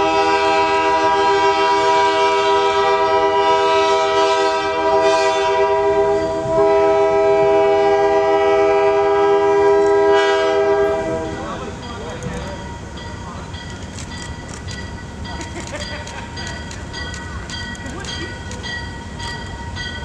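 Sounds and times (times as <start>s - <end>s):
locomotive air horn blast: 0.0s - 11.6s.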